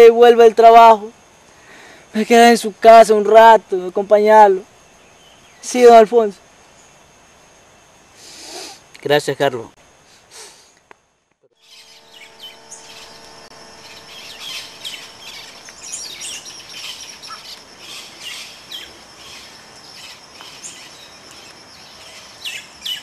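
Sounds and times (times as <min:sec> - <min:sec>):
high insect hum: 0:00.0 - 0:23.0
birds chirping: 0:11.6 - 0:23.0.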